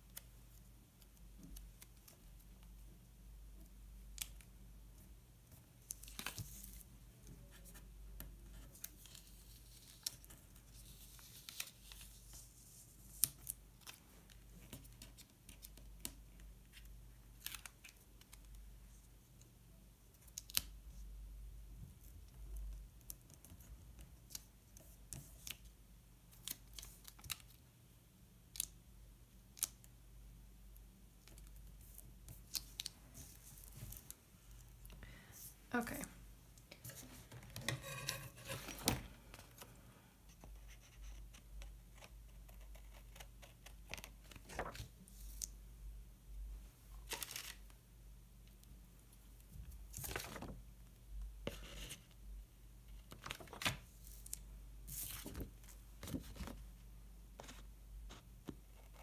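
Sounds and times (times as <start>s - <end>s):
paper pages being handled: 5.8s - 6.9s, 8.5s - 18.5s, 36.8s - 39.7s, 42.7s - 45.5s, 47.0s - 47.7s, 49.8s - 50.6s, 53.0s - 56.7s
scratchy paper rustles: 42.0s - 45.4s, 53.1s - 56.6s.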